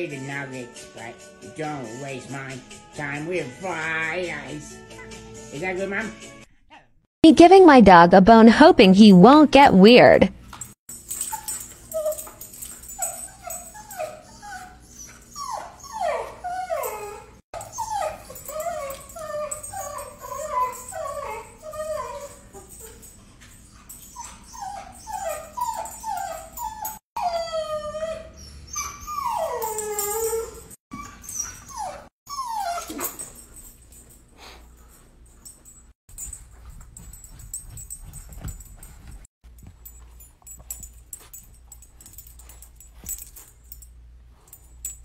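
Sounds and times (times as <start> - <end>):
dog whining and whimpering: 11.2 - 33.5.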